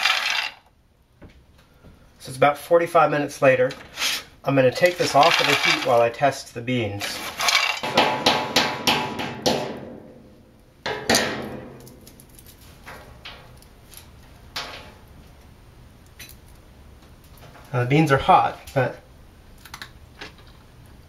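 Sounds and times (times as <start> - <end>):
spatula scraping beans in pan: 3.9 - 6.0, 7.0 - 7.8.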